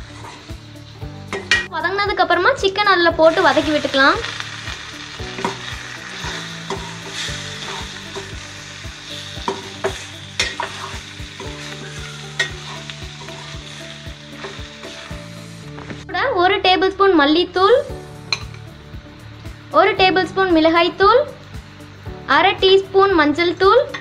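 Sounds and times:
chicken sizzling in oil: 0.0s - 1.7s, 2.4s - 16.0s
ladle scraping and clinking pan: 9.4s - 13.6s.

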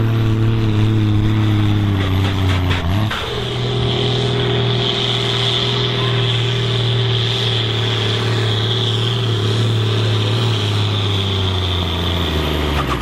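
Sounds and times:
steady high whine: 0.0s - 10.3s
diesel tractor engine under load: 0.0s - 13.0s.

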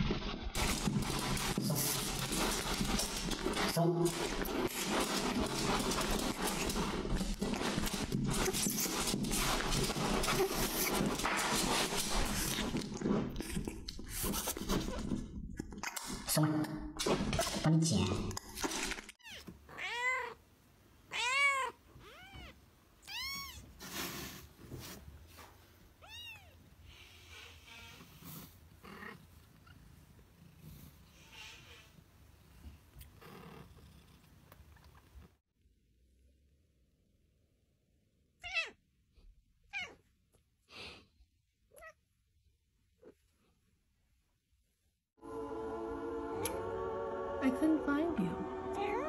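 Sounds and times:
cat meowing: 19.2s - 20.4s, 21.1s - 23.7s, 26.0s - 26.6s, 38.4s - 38.8s, 39.7s - 40.0s, 48.7s - 49.0s.

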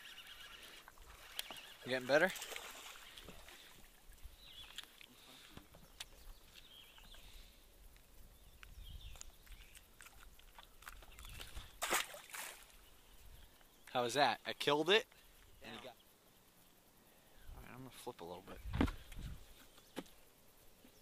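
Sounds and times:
rustle: 0.0s - 21.0s.

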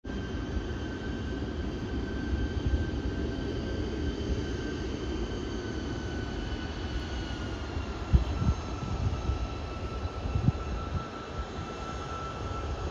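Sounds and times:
jet engine whine: 0.0s - 12.9s.

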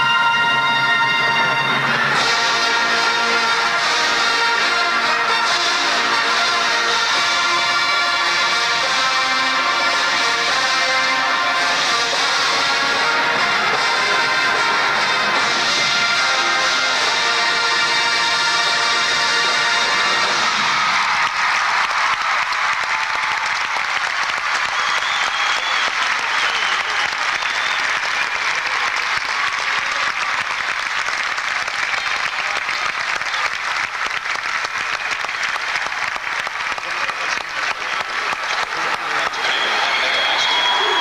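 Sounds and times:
crowd applauding: 0.0s - 41.0s
shouts and whistles: 20.6s - 29.6s, 39.0s - 41.0s.

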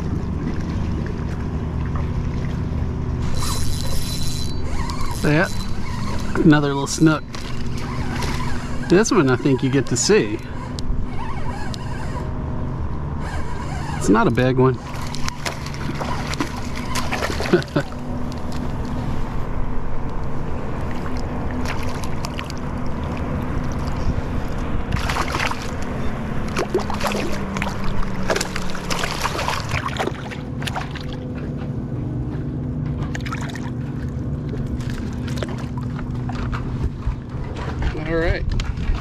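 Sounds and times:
motor humming: 0.0s - 37.6s
fish splashing at water surface: 14.8s - 19.0s, 20.9s - 31.4s.

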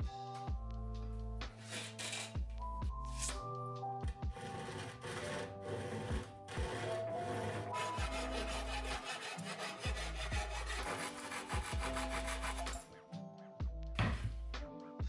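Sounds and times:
handsaw rasping through wood: 4.3s - 12.9s.

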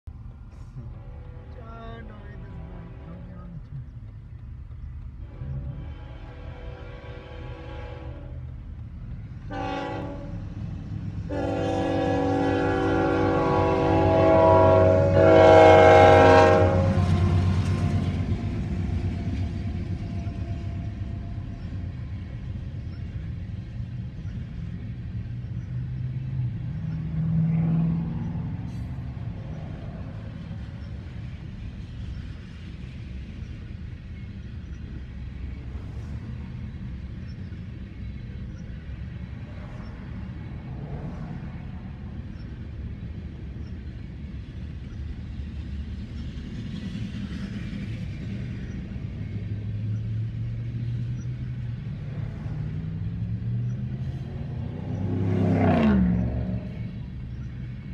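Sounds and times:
train rumbling by: 0.0s - 57.9s
locomotive air horn blasts: 5.2s - 8.5s, 9.5s - 10.4s, 11.3s - 17.4s.

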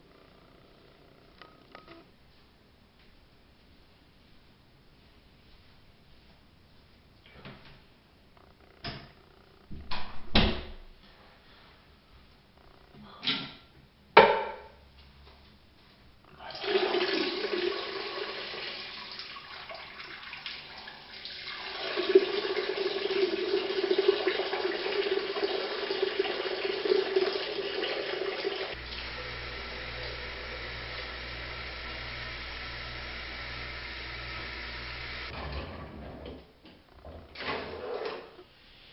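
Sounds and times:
tap water running into sink: 16.5s - 33.6s
steady low whine: 28.8s - 35.3s.

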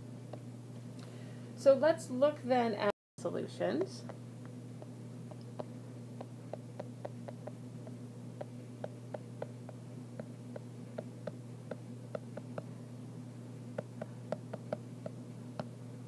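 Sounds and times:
low electrical hum: 0.0s - 16.0s
stylus tapping on glass screen: 6.5s - 7.6s, 13.8s - 15.7s.

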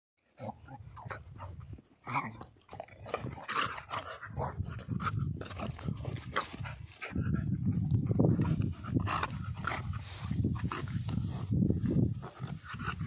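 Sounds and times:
dogs growling and grunting: 0.2s - 13.0s.

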